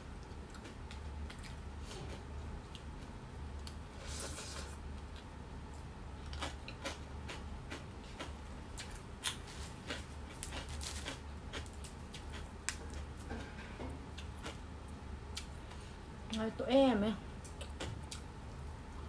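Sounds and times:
steady low hum: 0:00.0 - 0:19.0
chewing with lip smacks: 0:00.2 - 0:03.0.

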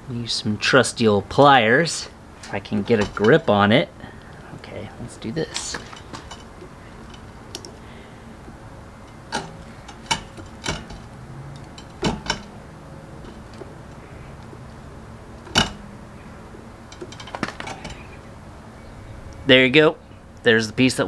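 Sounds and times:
pliers clicking and scraping on metal: 0:05.5 - 0:07.8, 0:09.1 - 0:12.5, 0:16.9 - 0:18.2
sharp clicks and knocks: 0:05.5 - 0:07.8, 0:09.0 - 0:12.6, 0:13.2 - 0:15.9, 0:16.9 - 0:18.2.

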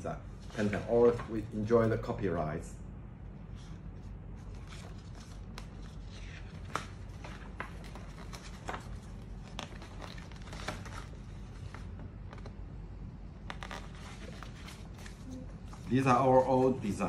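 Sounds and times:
paper rustling and crackling: 0:04.4 - 0:12.6, 0:13.4 - 0:17.0.

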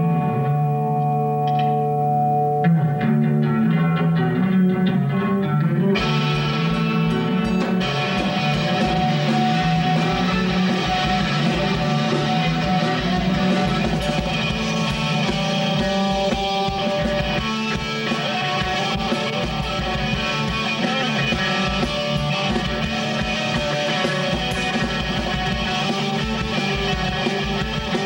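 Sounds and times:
electric guitar: 0:00.0 - 0:28.0
drum kit beat: 0:06.0 - 0:28.0.

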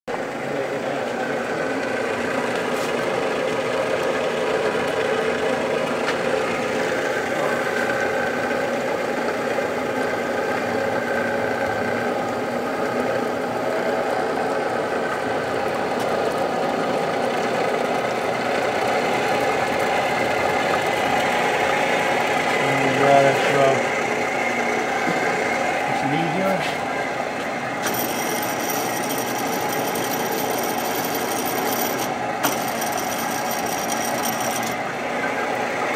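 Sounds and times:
milling machine humming: 0:00.1 - 0:35.9.

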